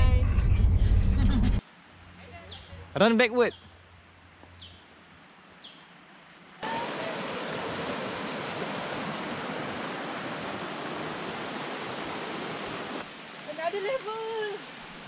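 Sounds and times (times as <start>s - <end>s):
river water rushing over rapids: 6.6s - 15.0s.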